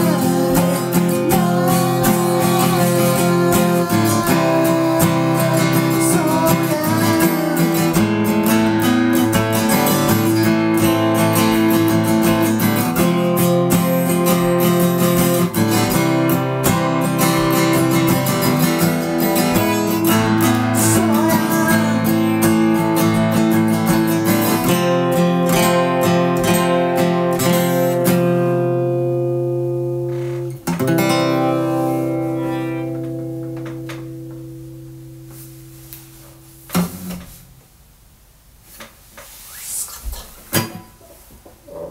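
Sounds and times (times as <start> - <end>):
acoustic guitar playing: 0.0 - 37.8, 40.5 - 41.9
knock on guitar: 32.9 - 34.5.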